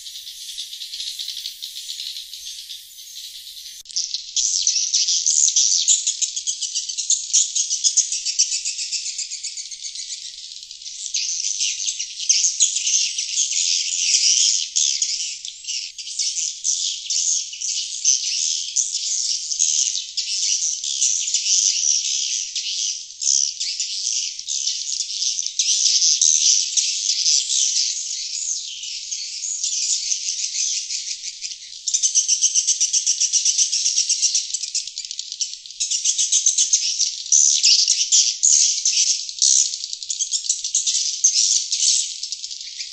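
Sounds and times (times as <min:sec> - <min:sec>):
swiftlets twittering chorus: 0:00.0 - 0:03.9.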